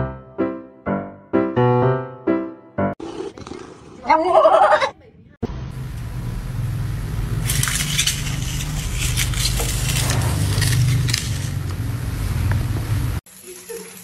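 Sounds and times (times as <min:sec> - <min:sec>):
wheels rumbling on tile: 0:06.0 - 0:13.2.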